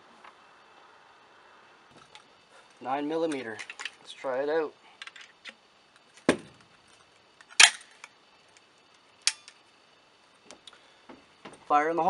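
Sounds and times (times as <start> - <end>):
shotgun action metallic clicks: 7.4 - 8.2, 9.2 - 9.6.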